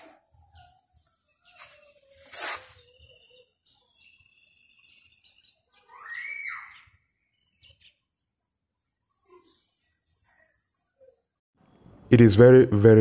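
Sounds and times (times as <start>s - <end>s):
birds chirping: 0.0s - 9.8s.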